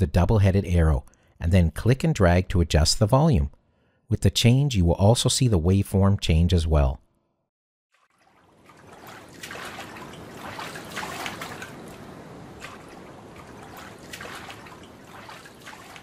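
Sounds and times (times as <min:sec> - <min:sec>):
water splashing: 0:07.9 - 0:16.0
ocean waves washing: 0:08.2 - 0:16.0.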